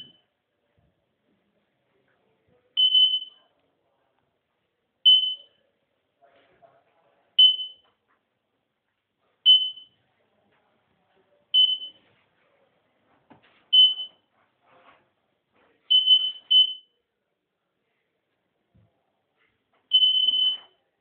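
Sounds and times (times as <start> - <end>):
electronic beeper beeping: 20.0 - 20.7.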